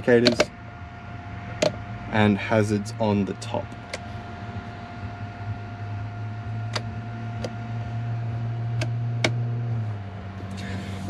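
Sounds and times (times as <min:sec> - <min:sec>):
low electrical hum: 0:00.0 - 0:11.0
thin constant whine: 0:00.0 - 0:11.0
switch stalk clicks: 0:06.7 - 0:07.6.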